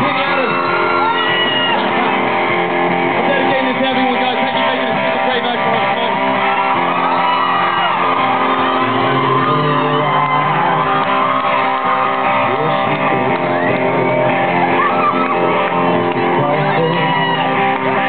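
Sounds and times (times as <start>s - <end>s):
electric guitar: 0.0s - 18.0s
live rock band playing: 0.0s - 18.0s
people singing and shouting: 0.0s - 18.0s.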